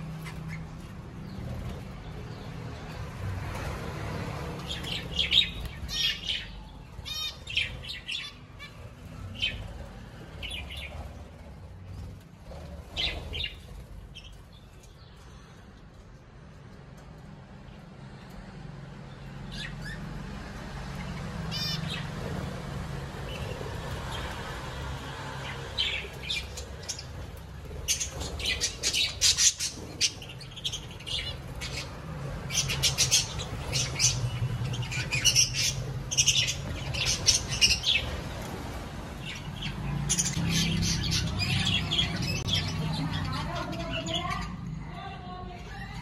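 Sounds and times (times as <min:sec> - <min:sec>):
budgerigars chirping and squawking: 0:00.0 - 0:01.4, 0:04.6 - 0:09.8, 0:21.5 - 0:22.1, 0:27.8 - 0:38.3, 0:39.2 - 0:44.5.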